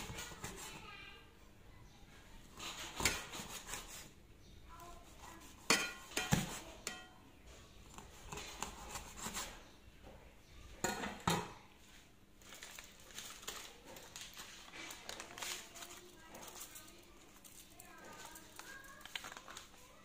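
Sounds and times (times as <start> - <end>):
pots and utensils clinking: 5.6 - 7.2, 10.8 - 11.6.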